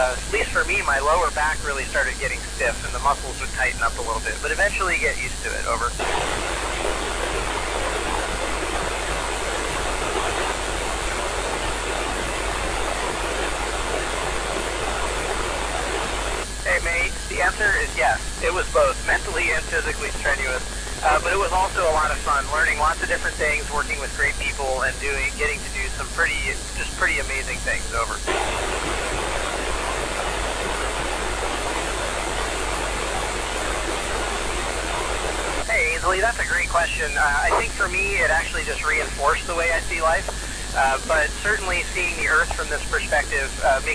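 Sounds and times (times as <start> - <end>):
radio hiss: 0.0 - 43.9.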